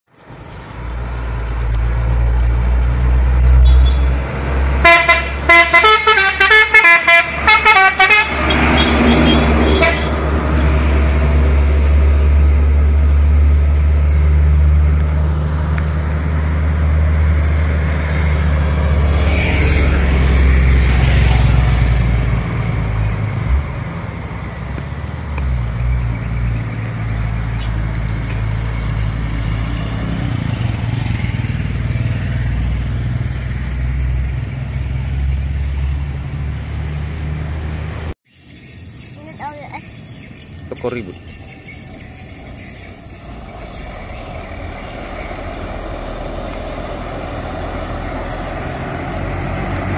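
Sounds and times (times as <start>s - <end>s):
musical truck horn: 4.8s - 10.3s.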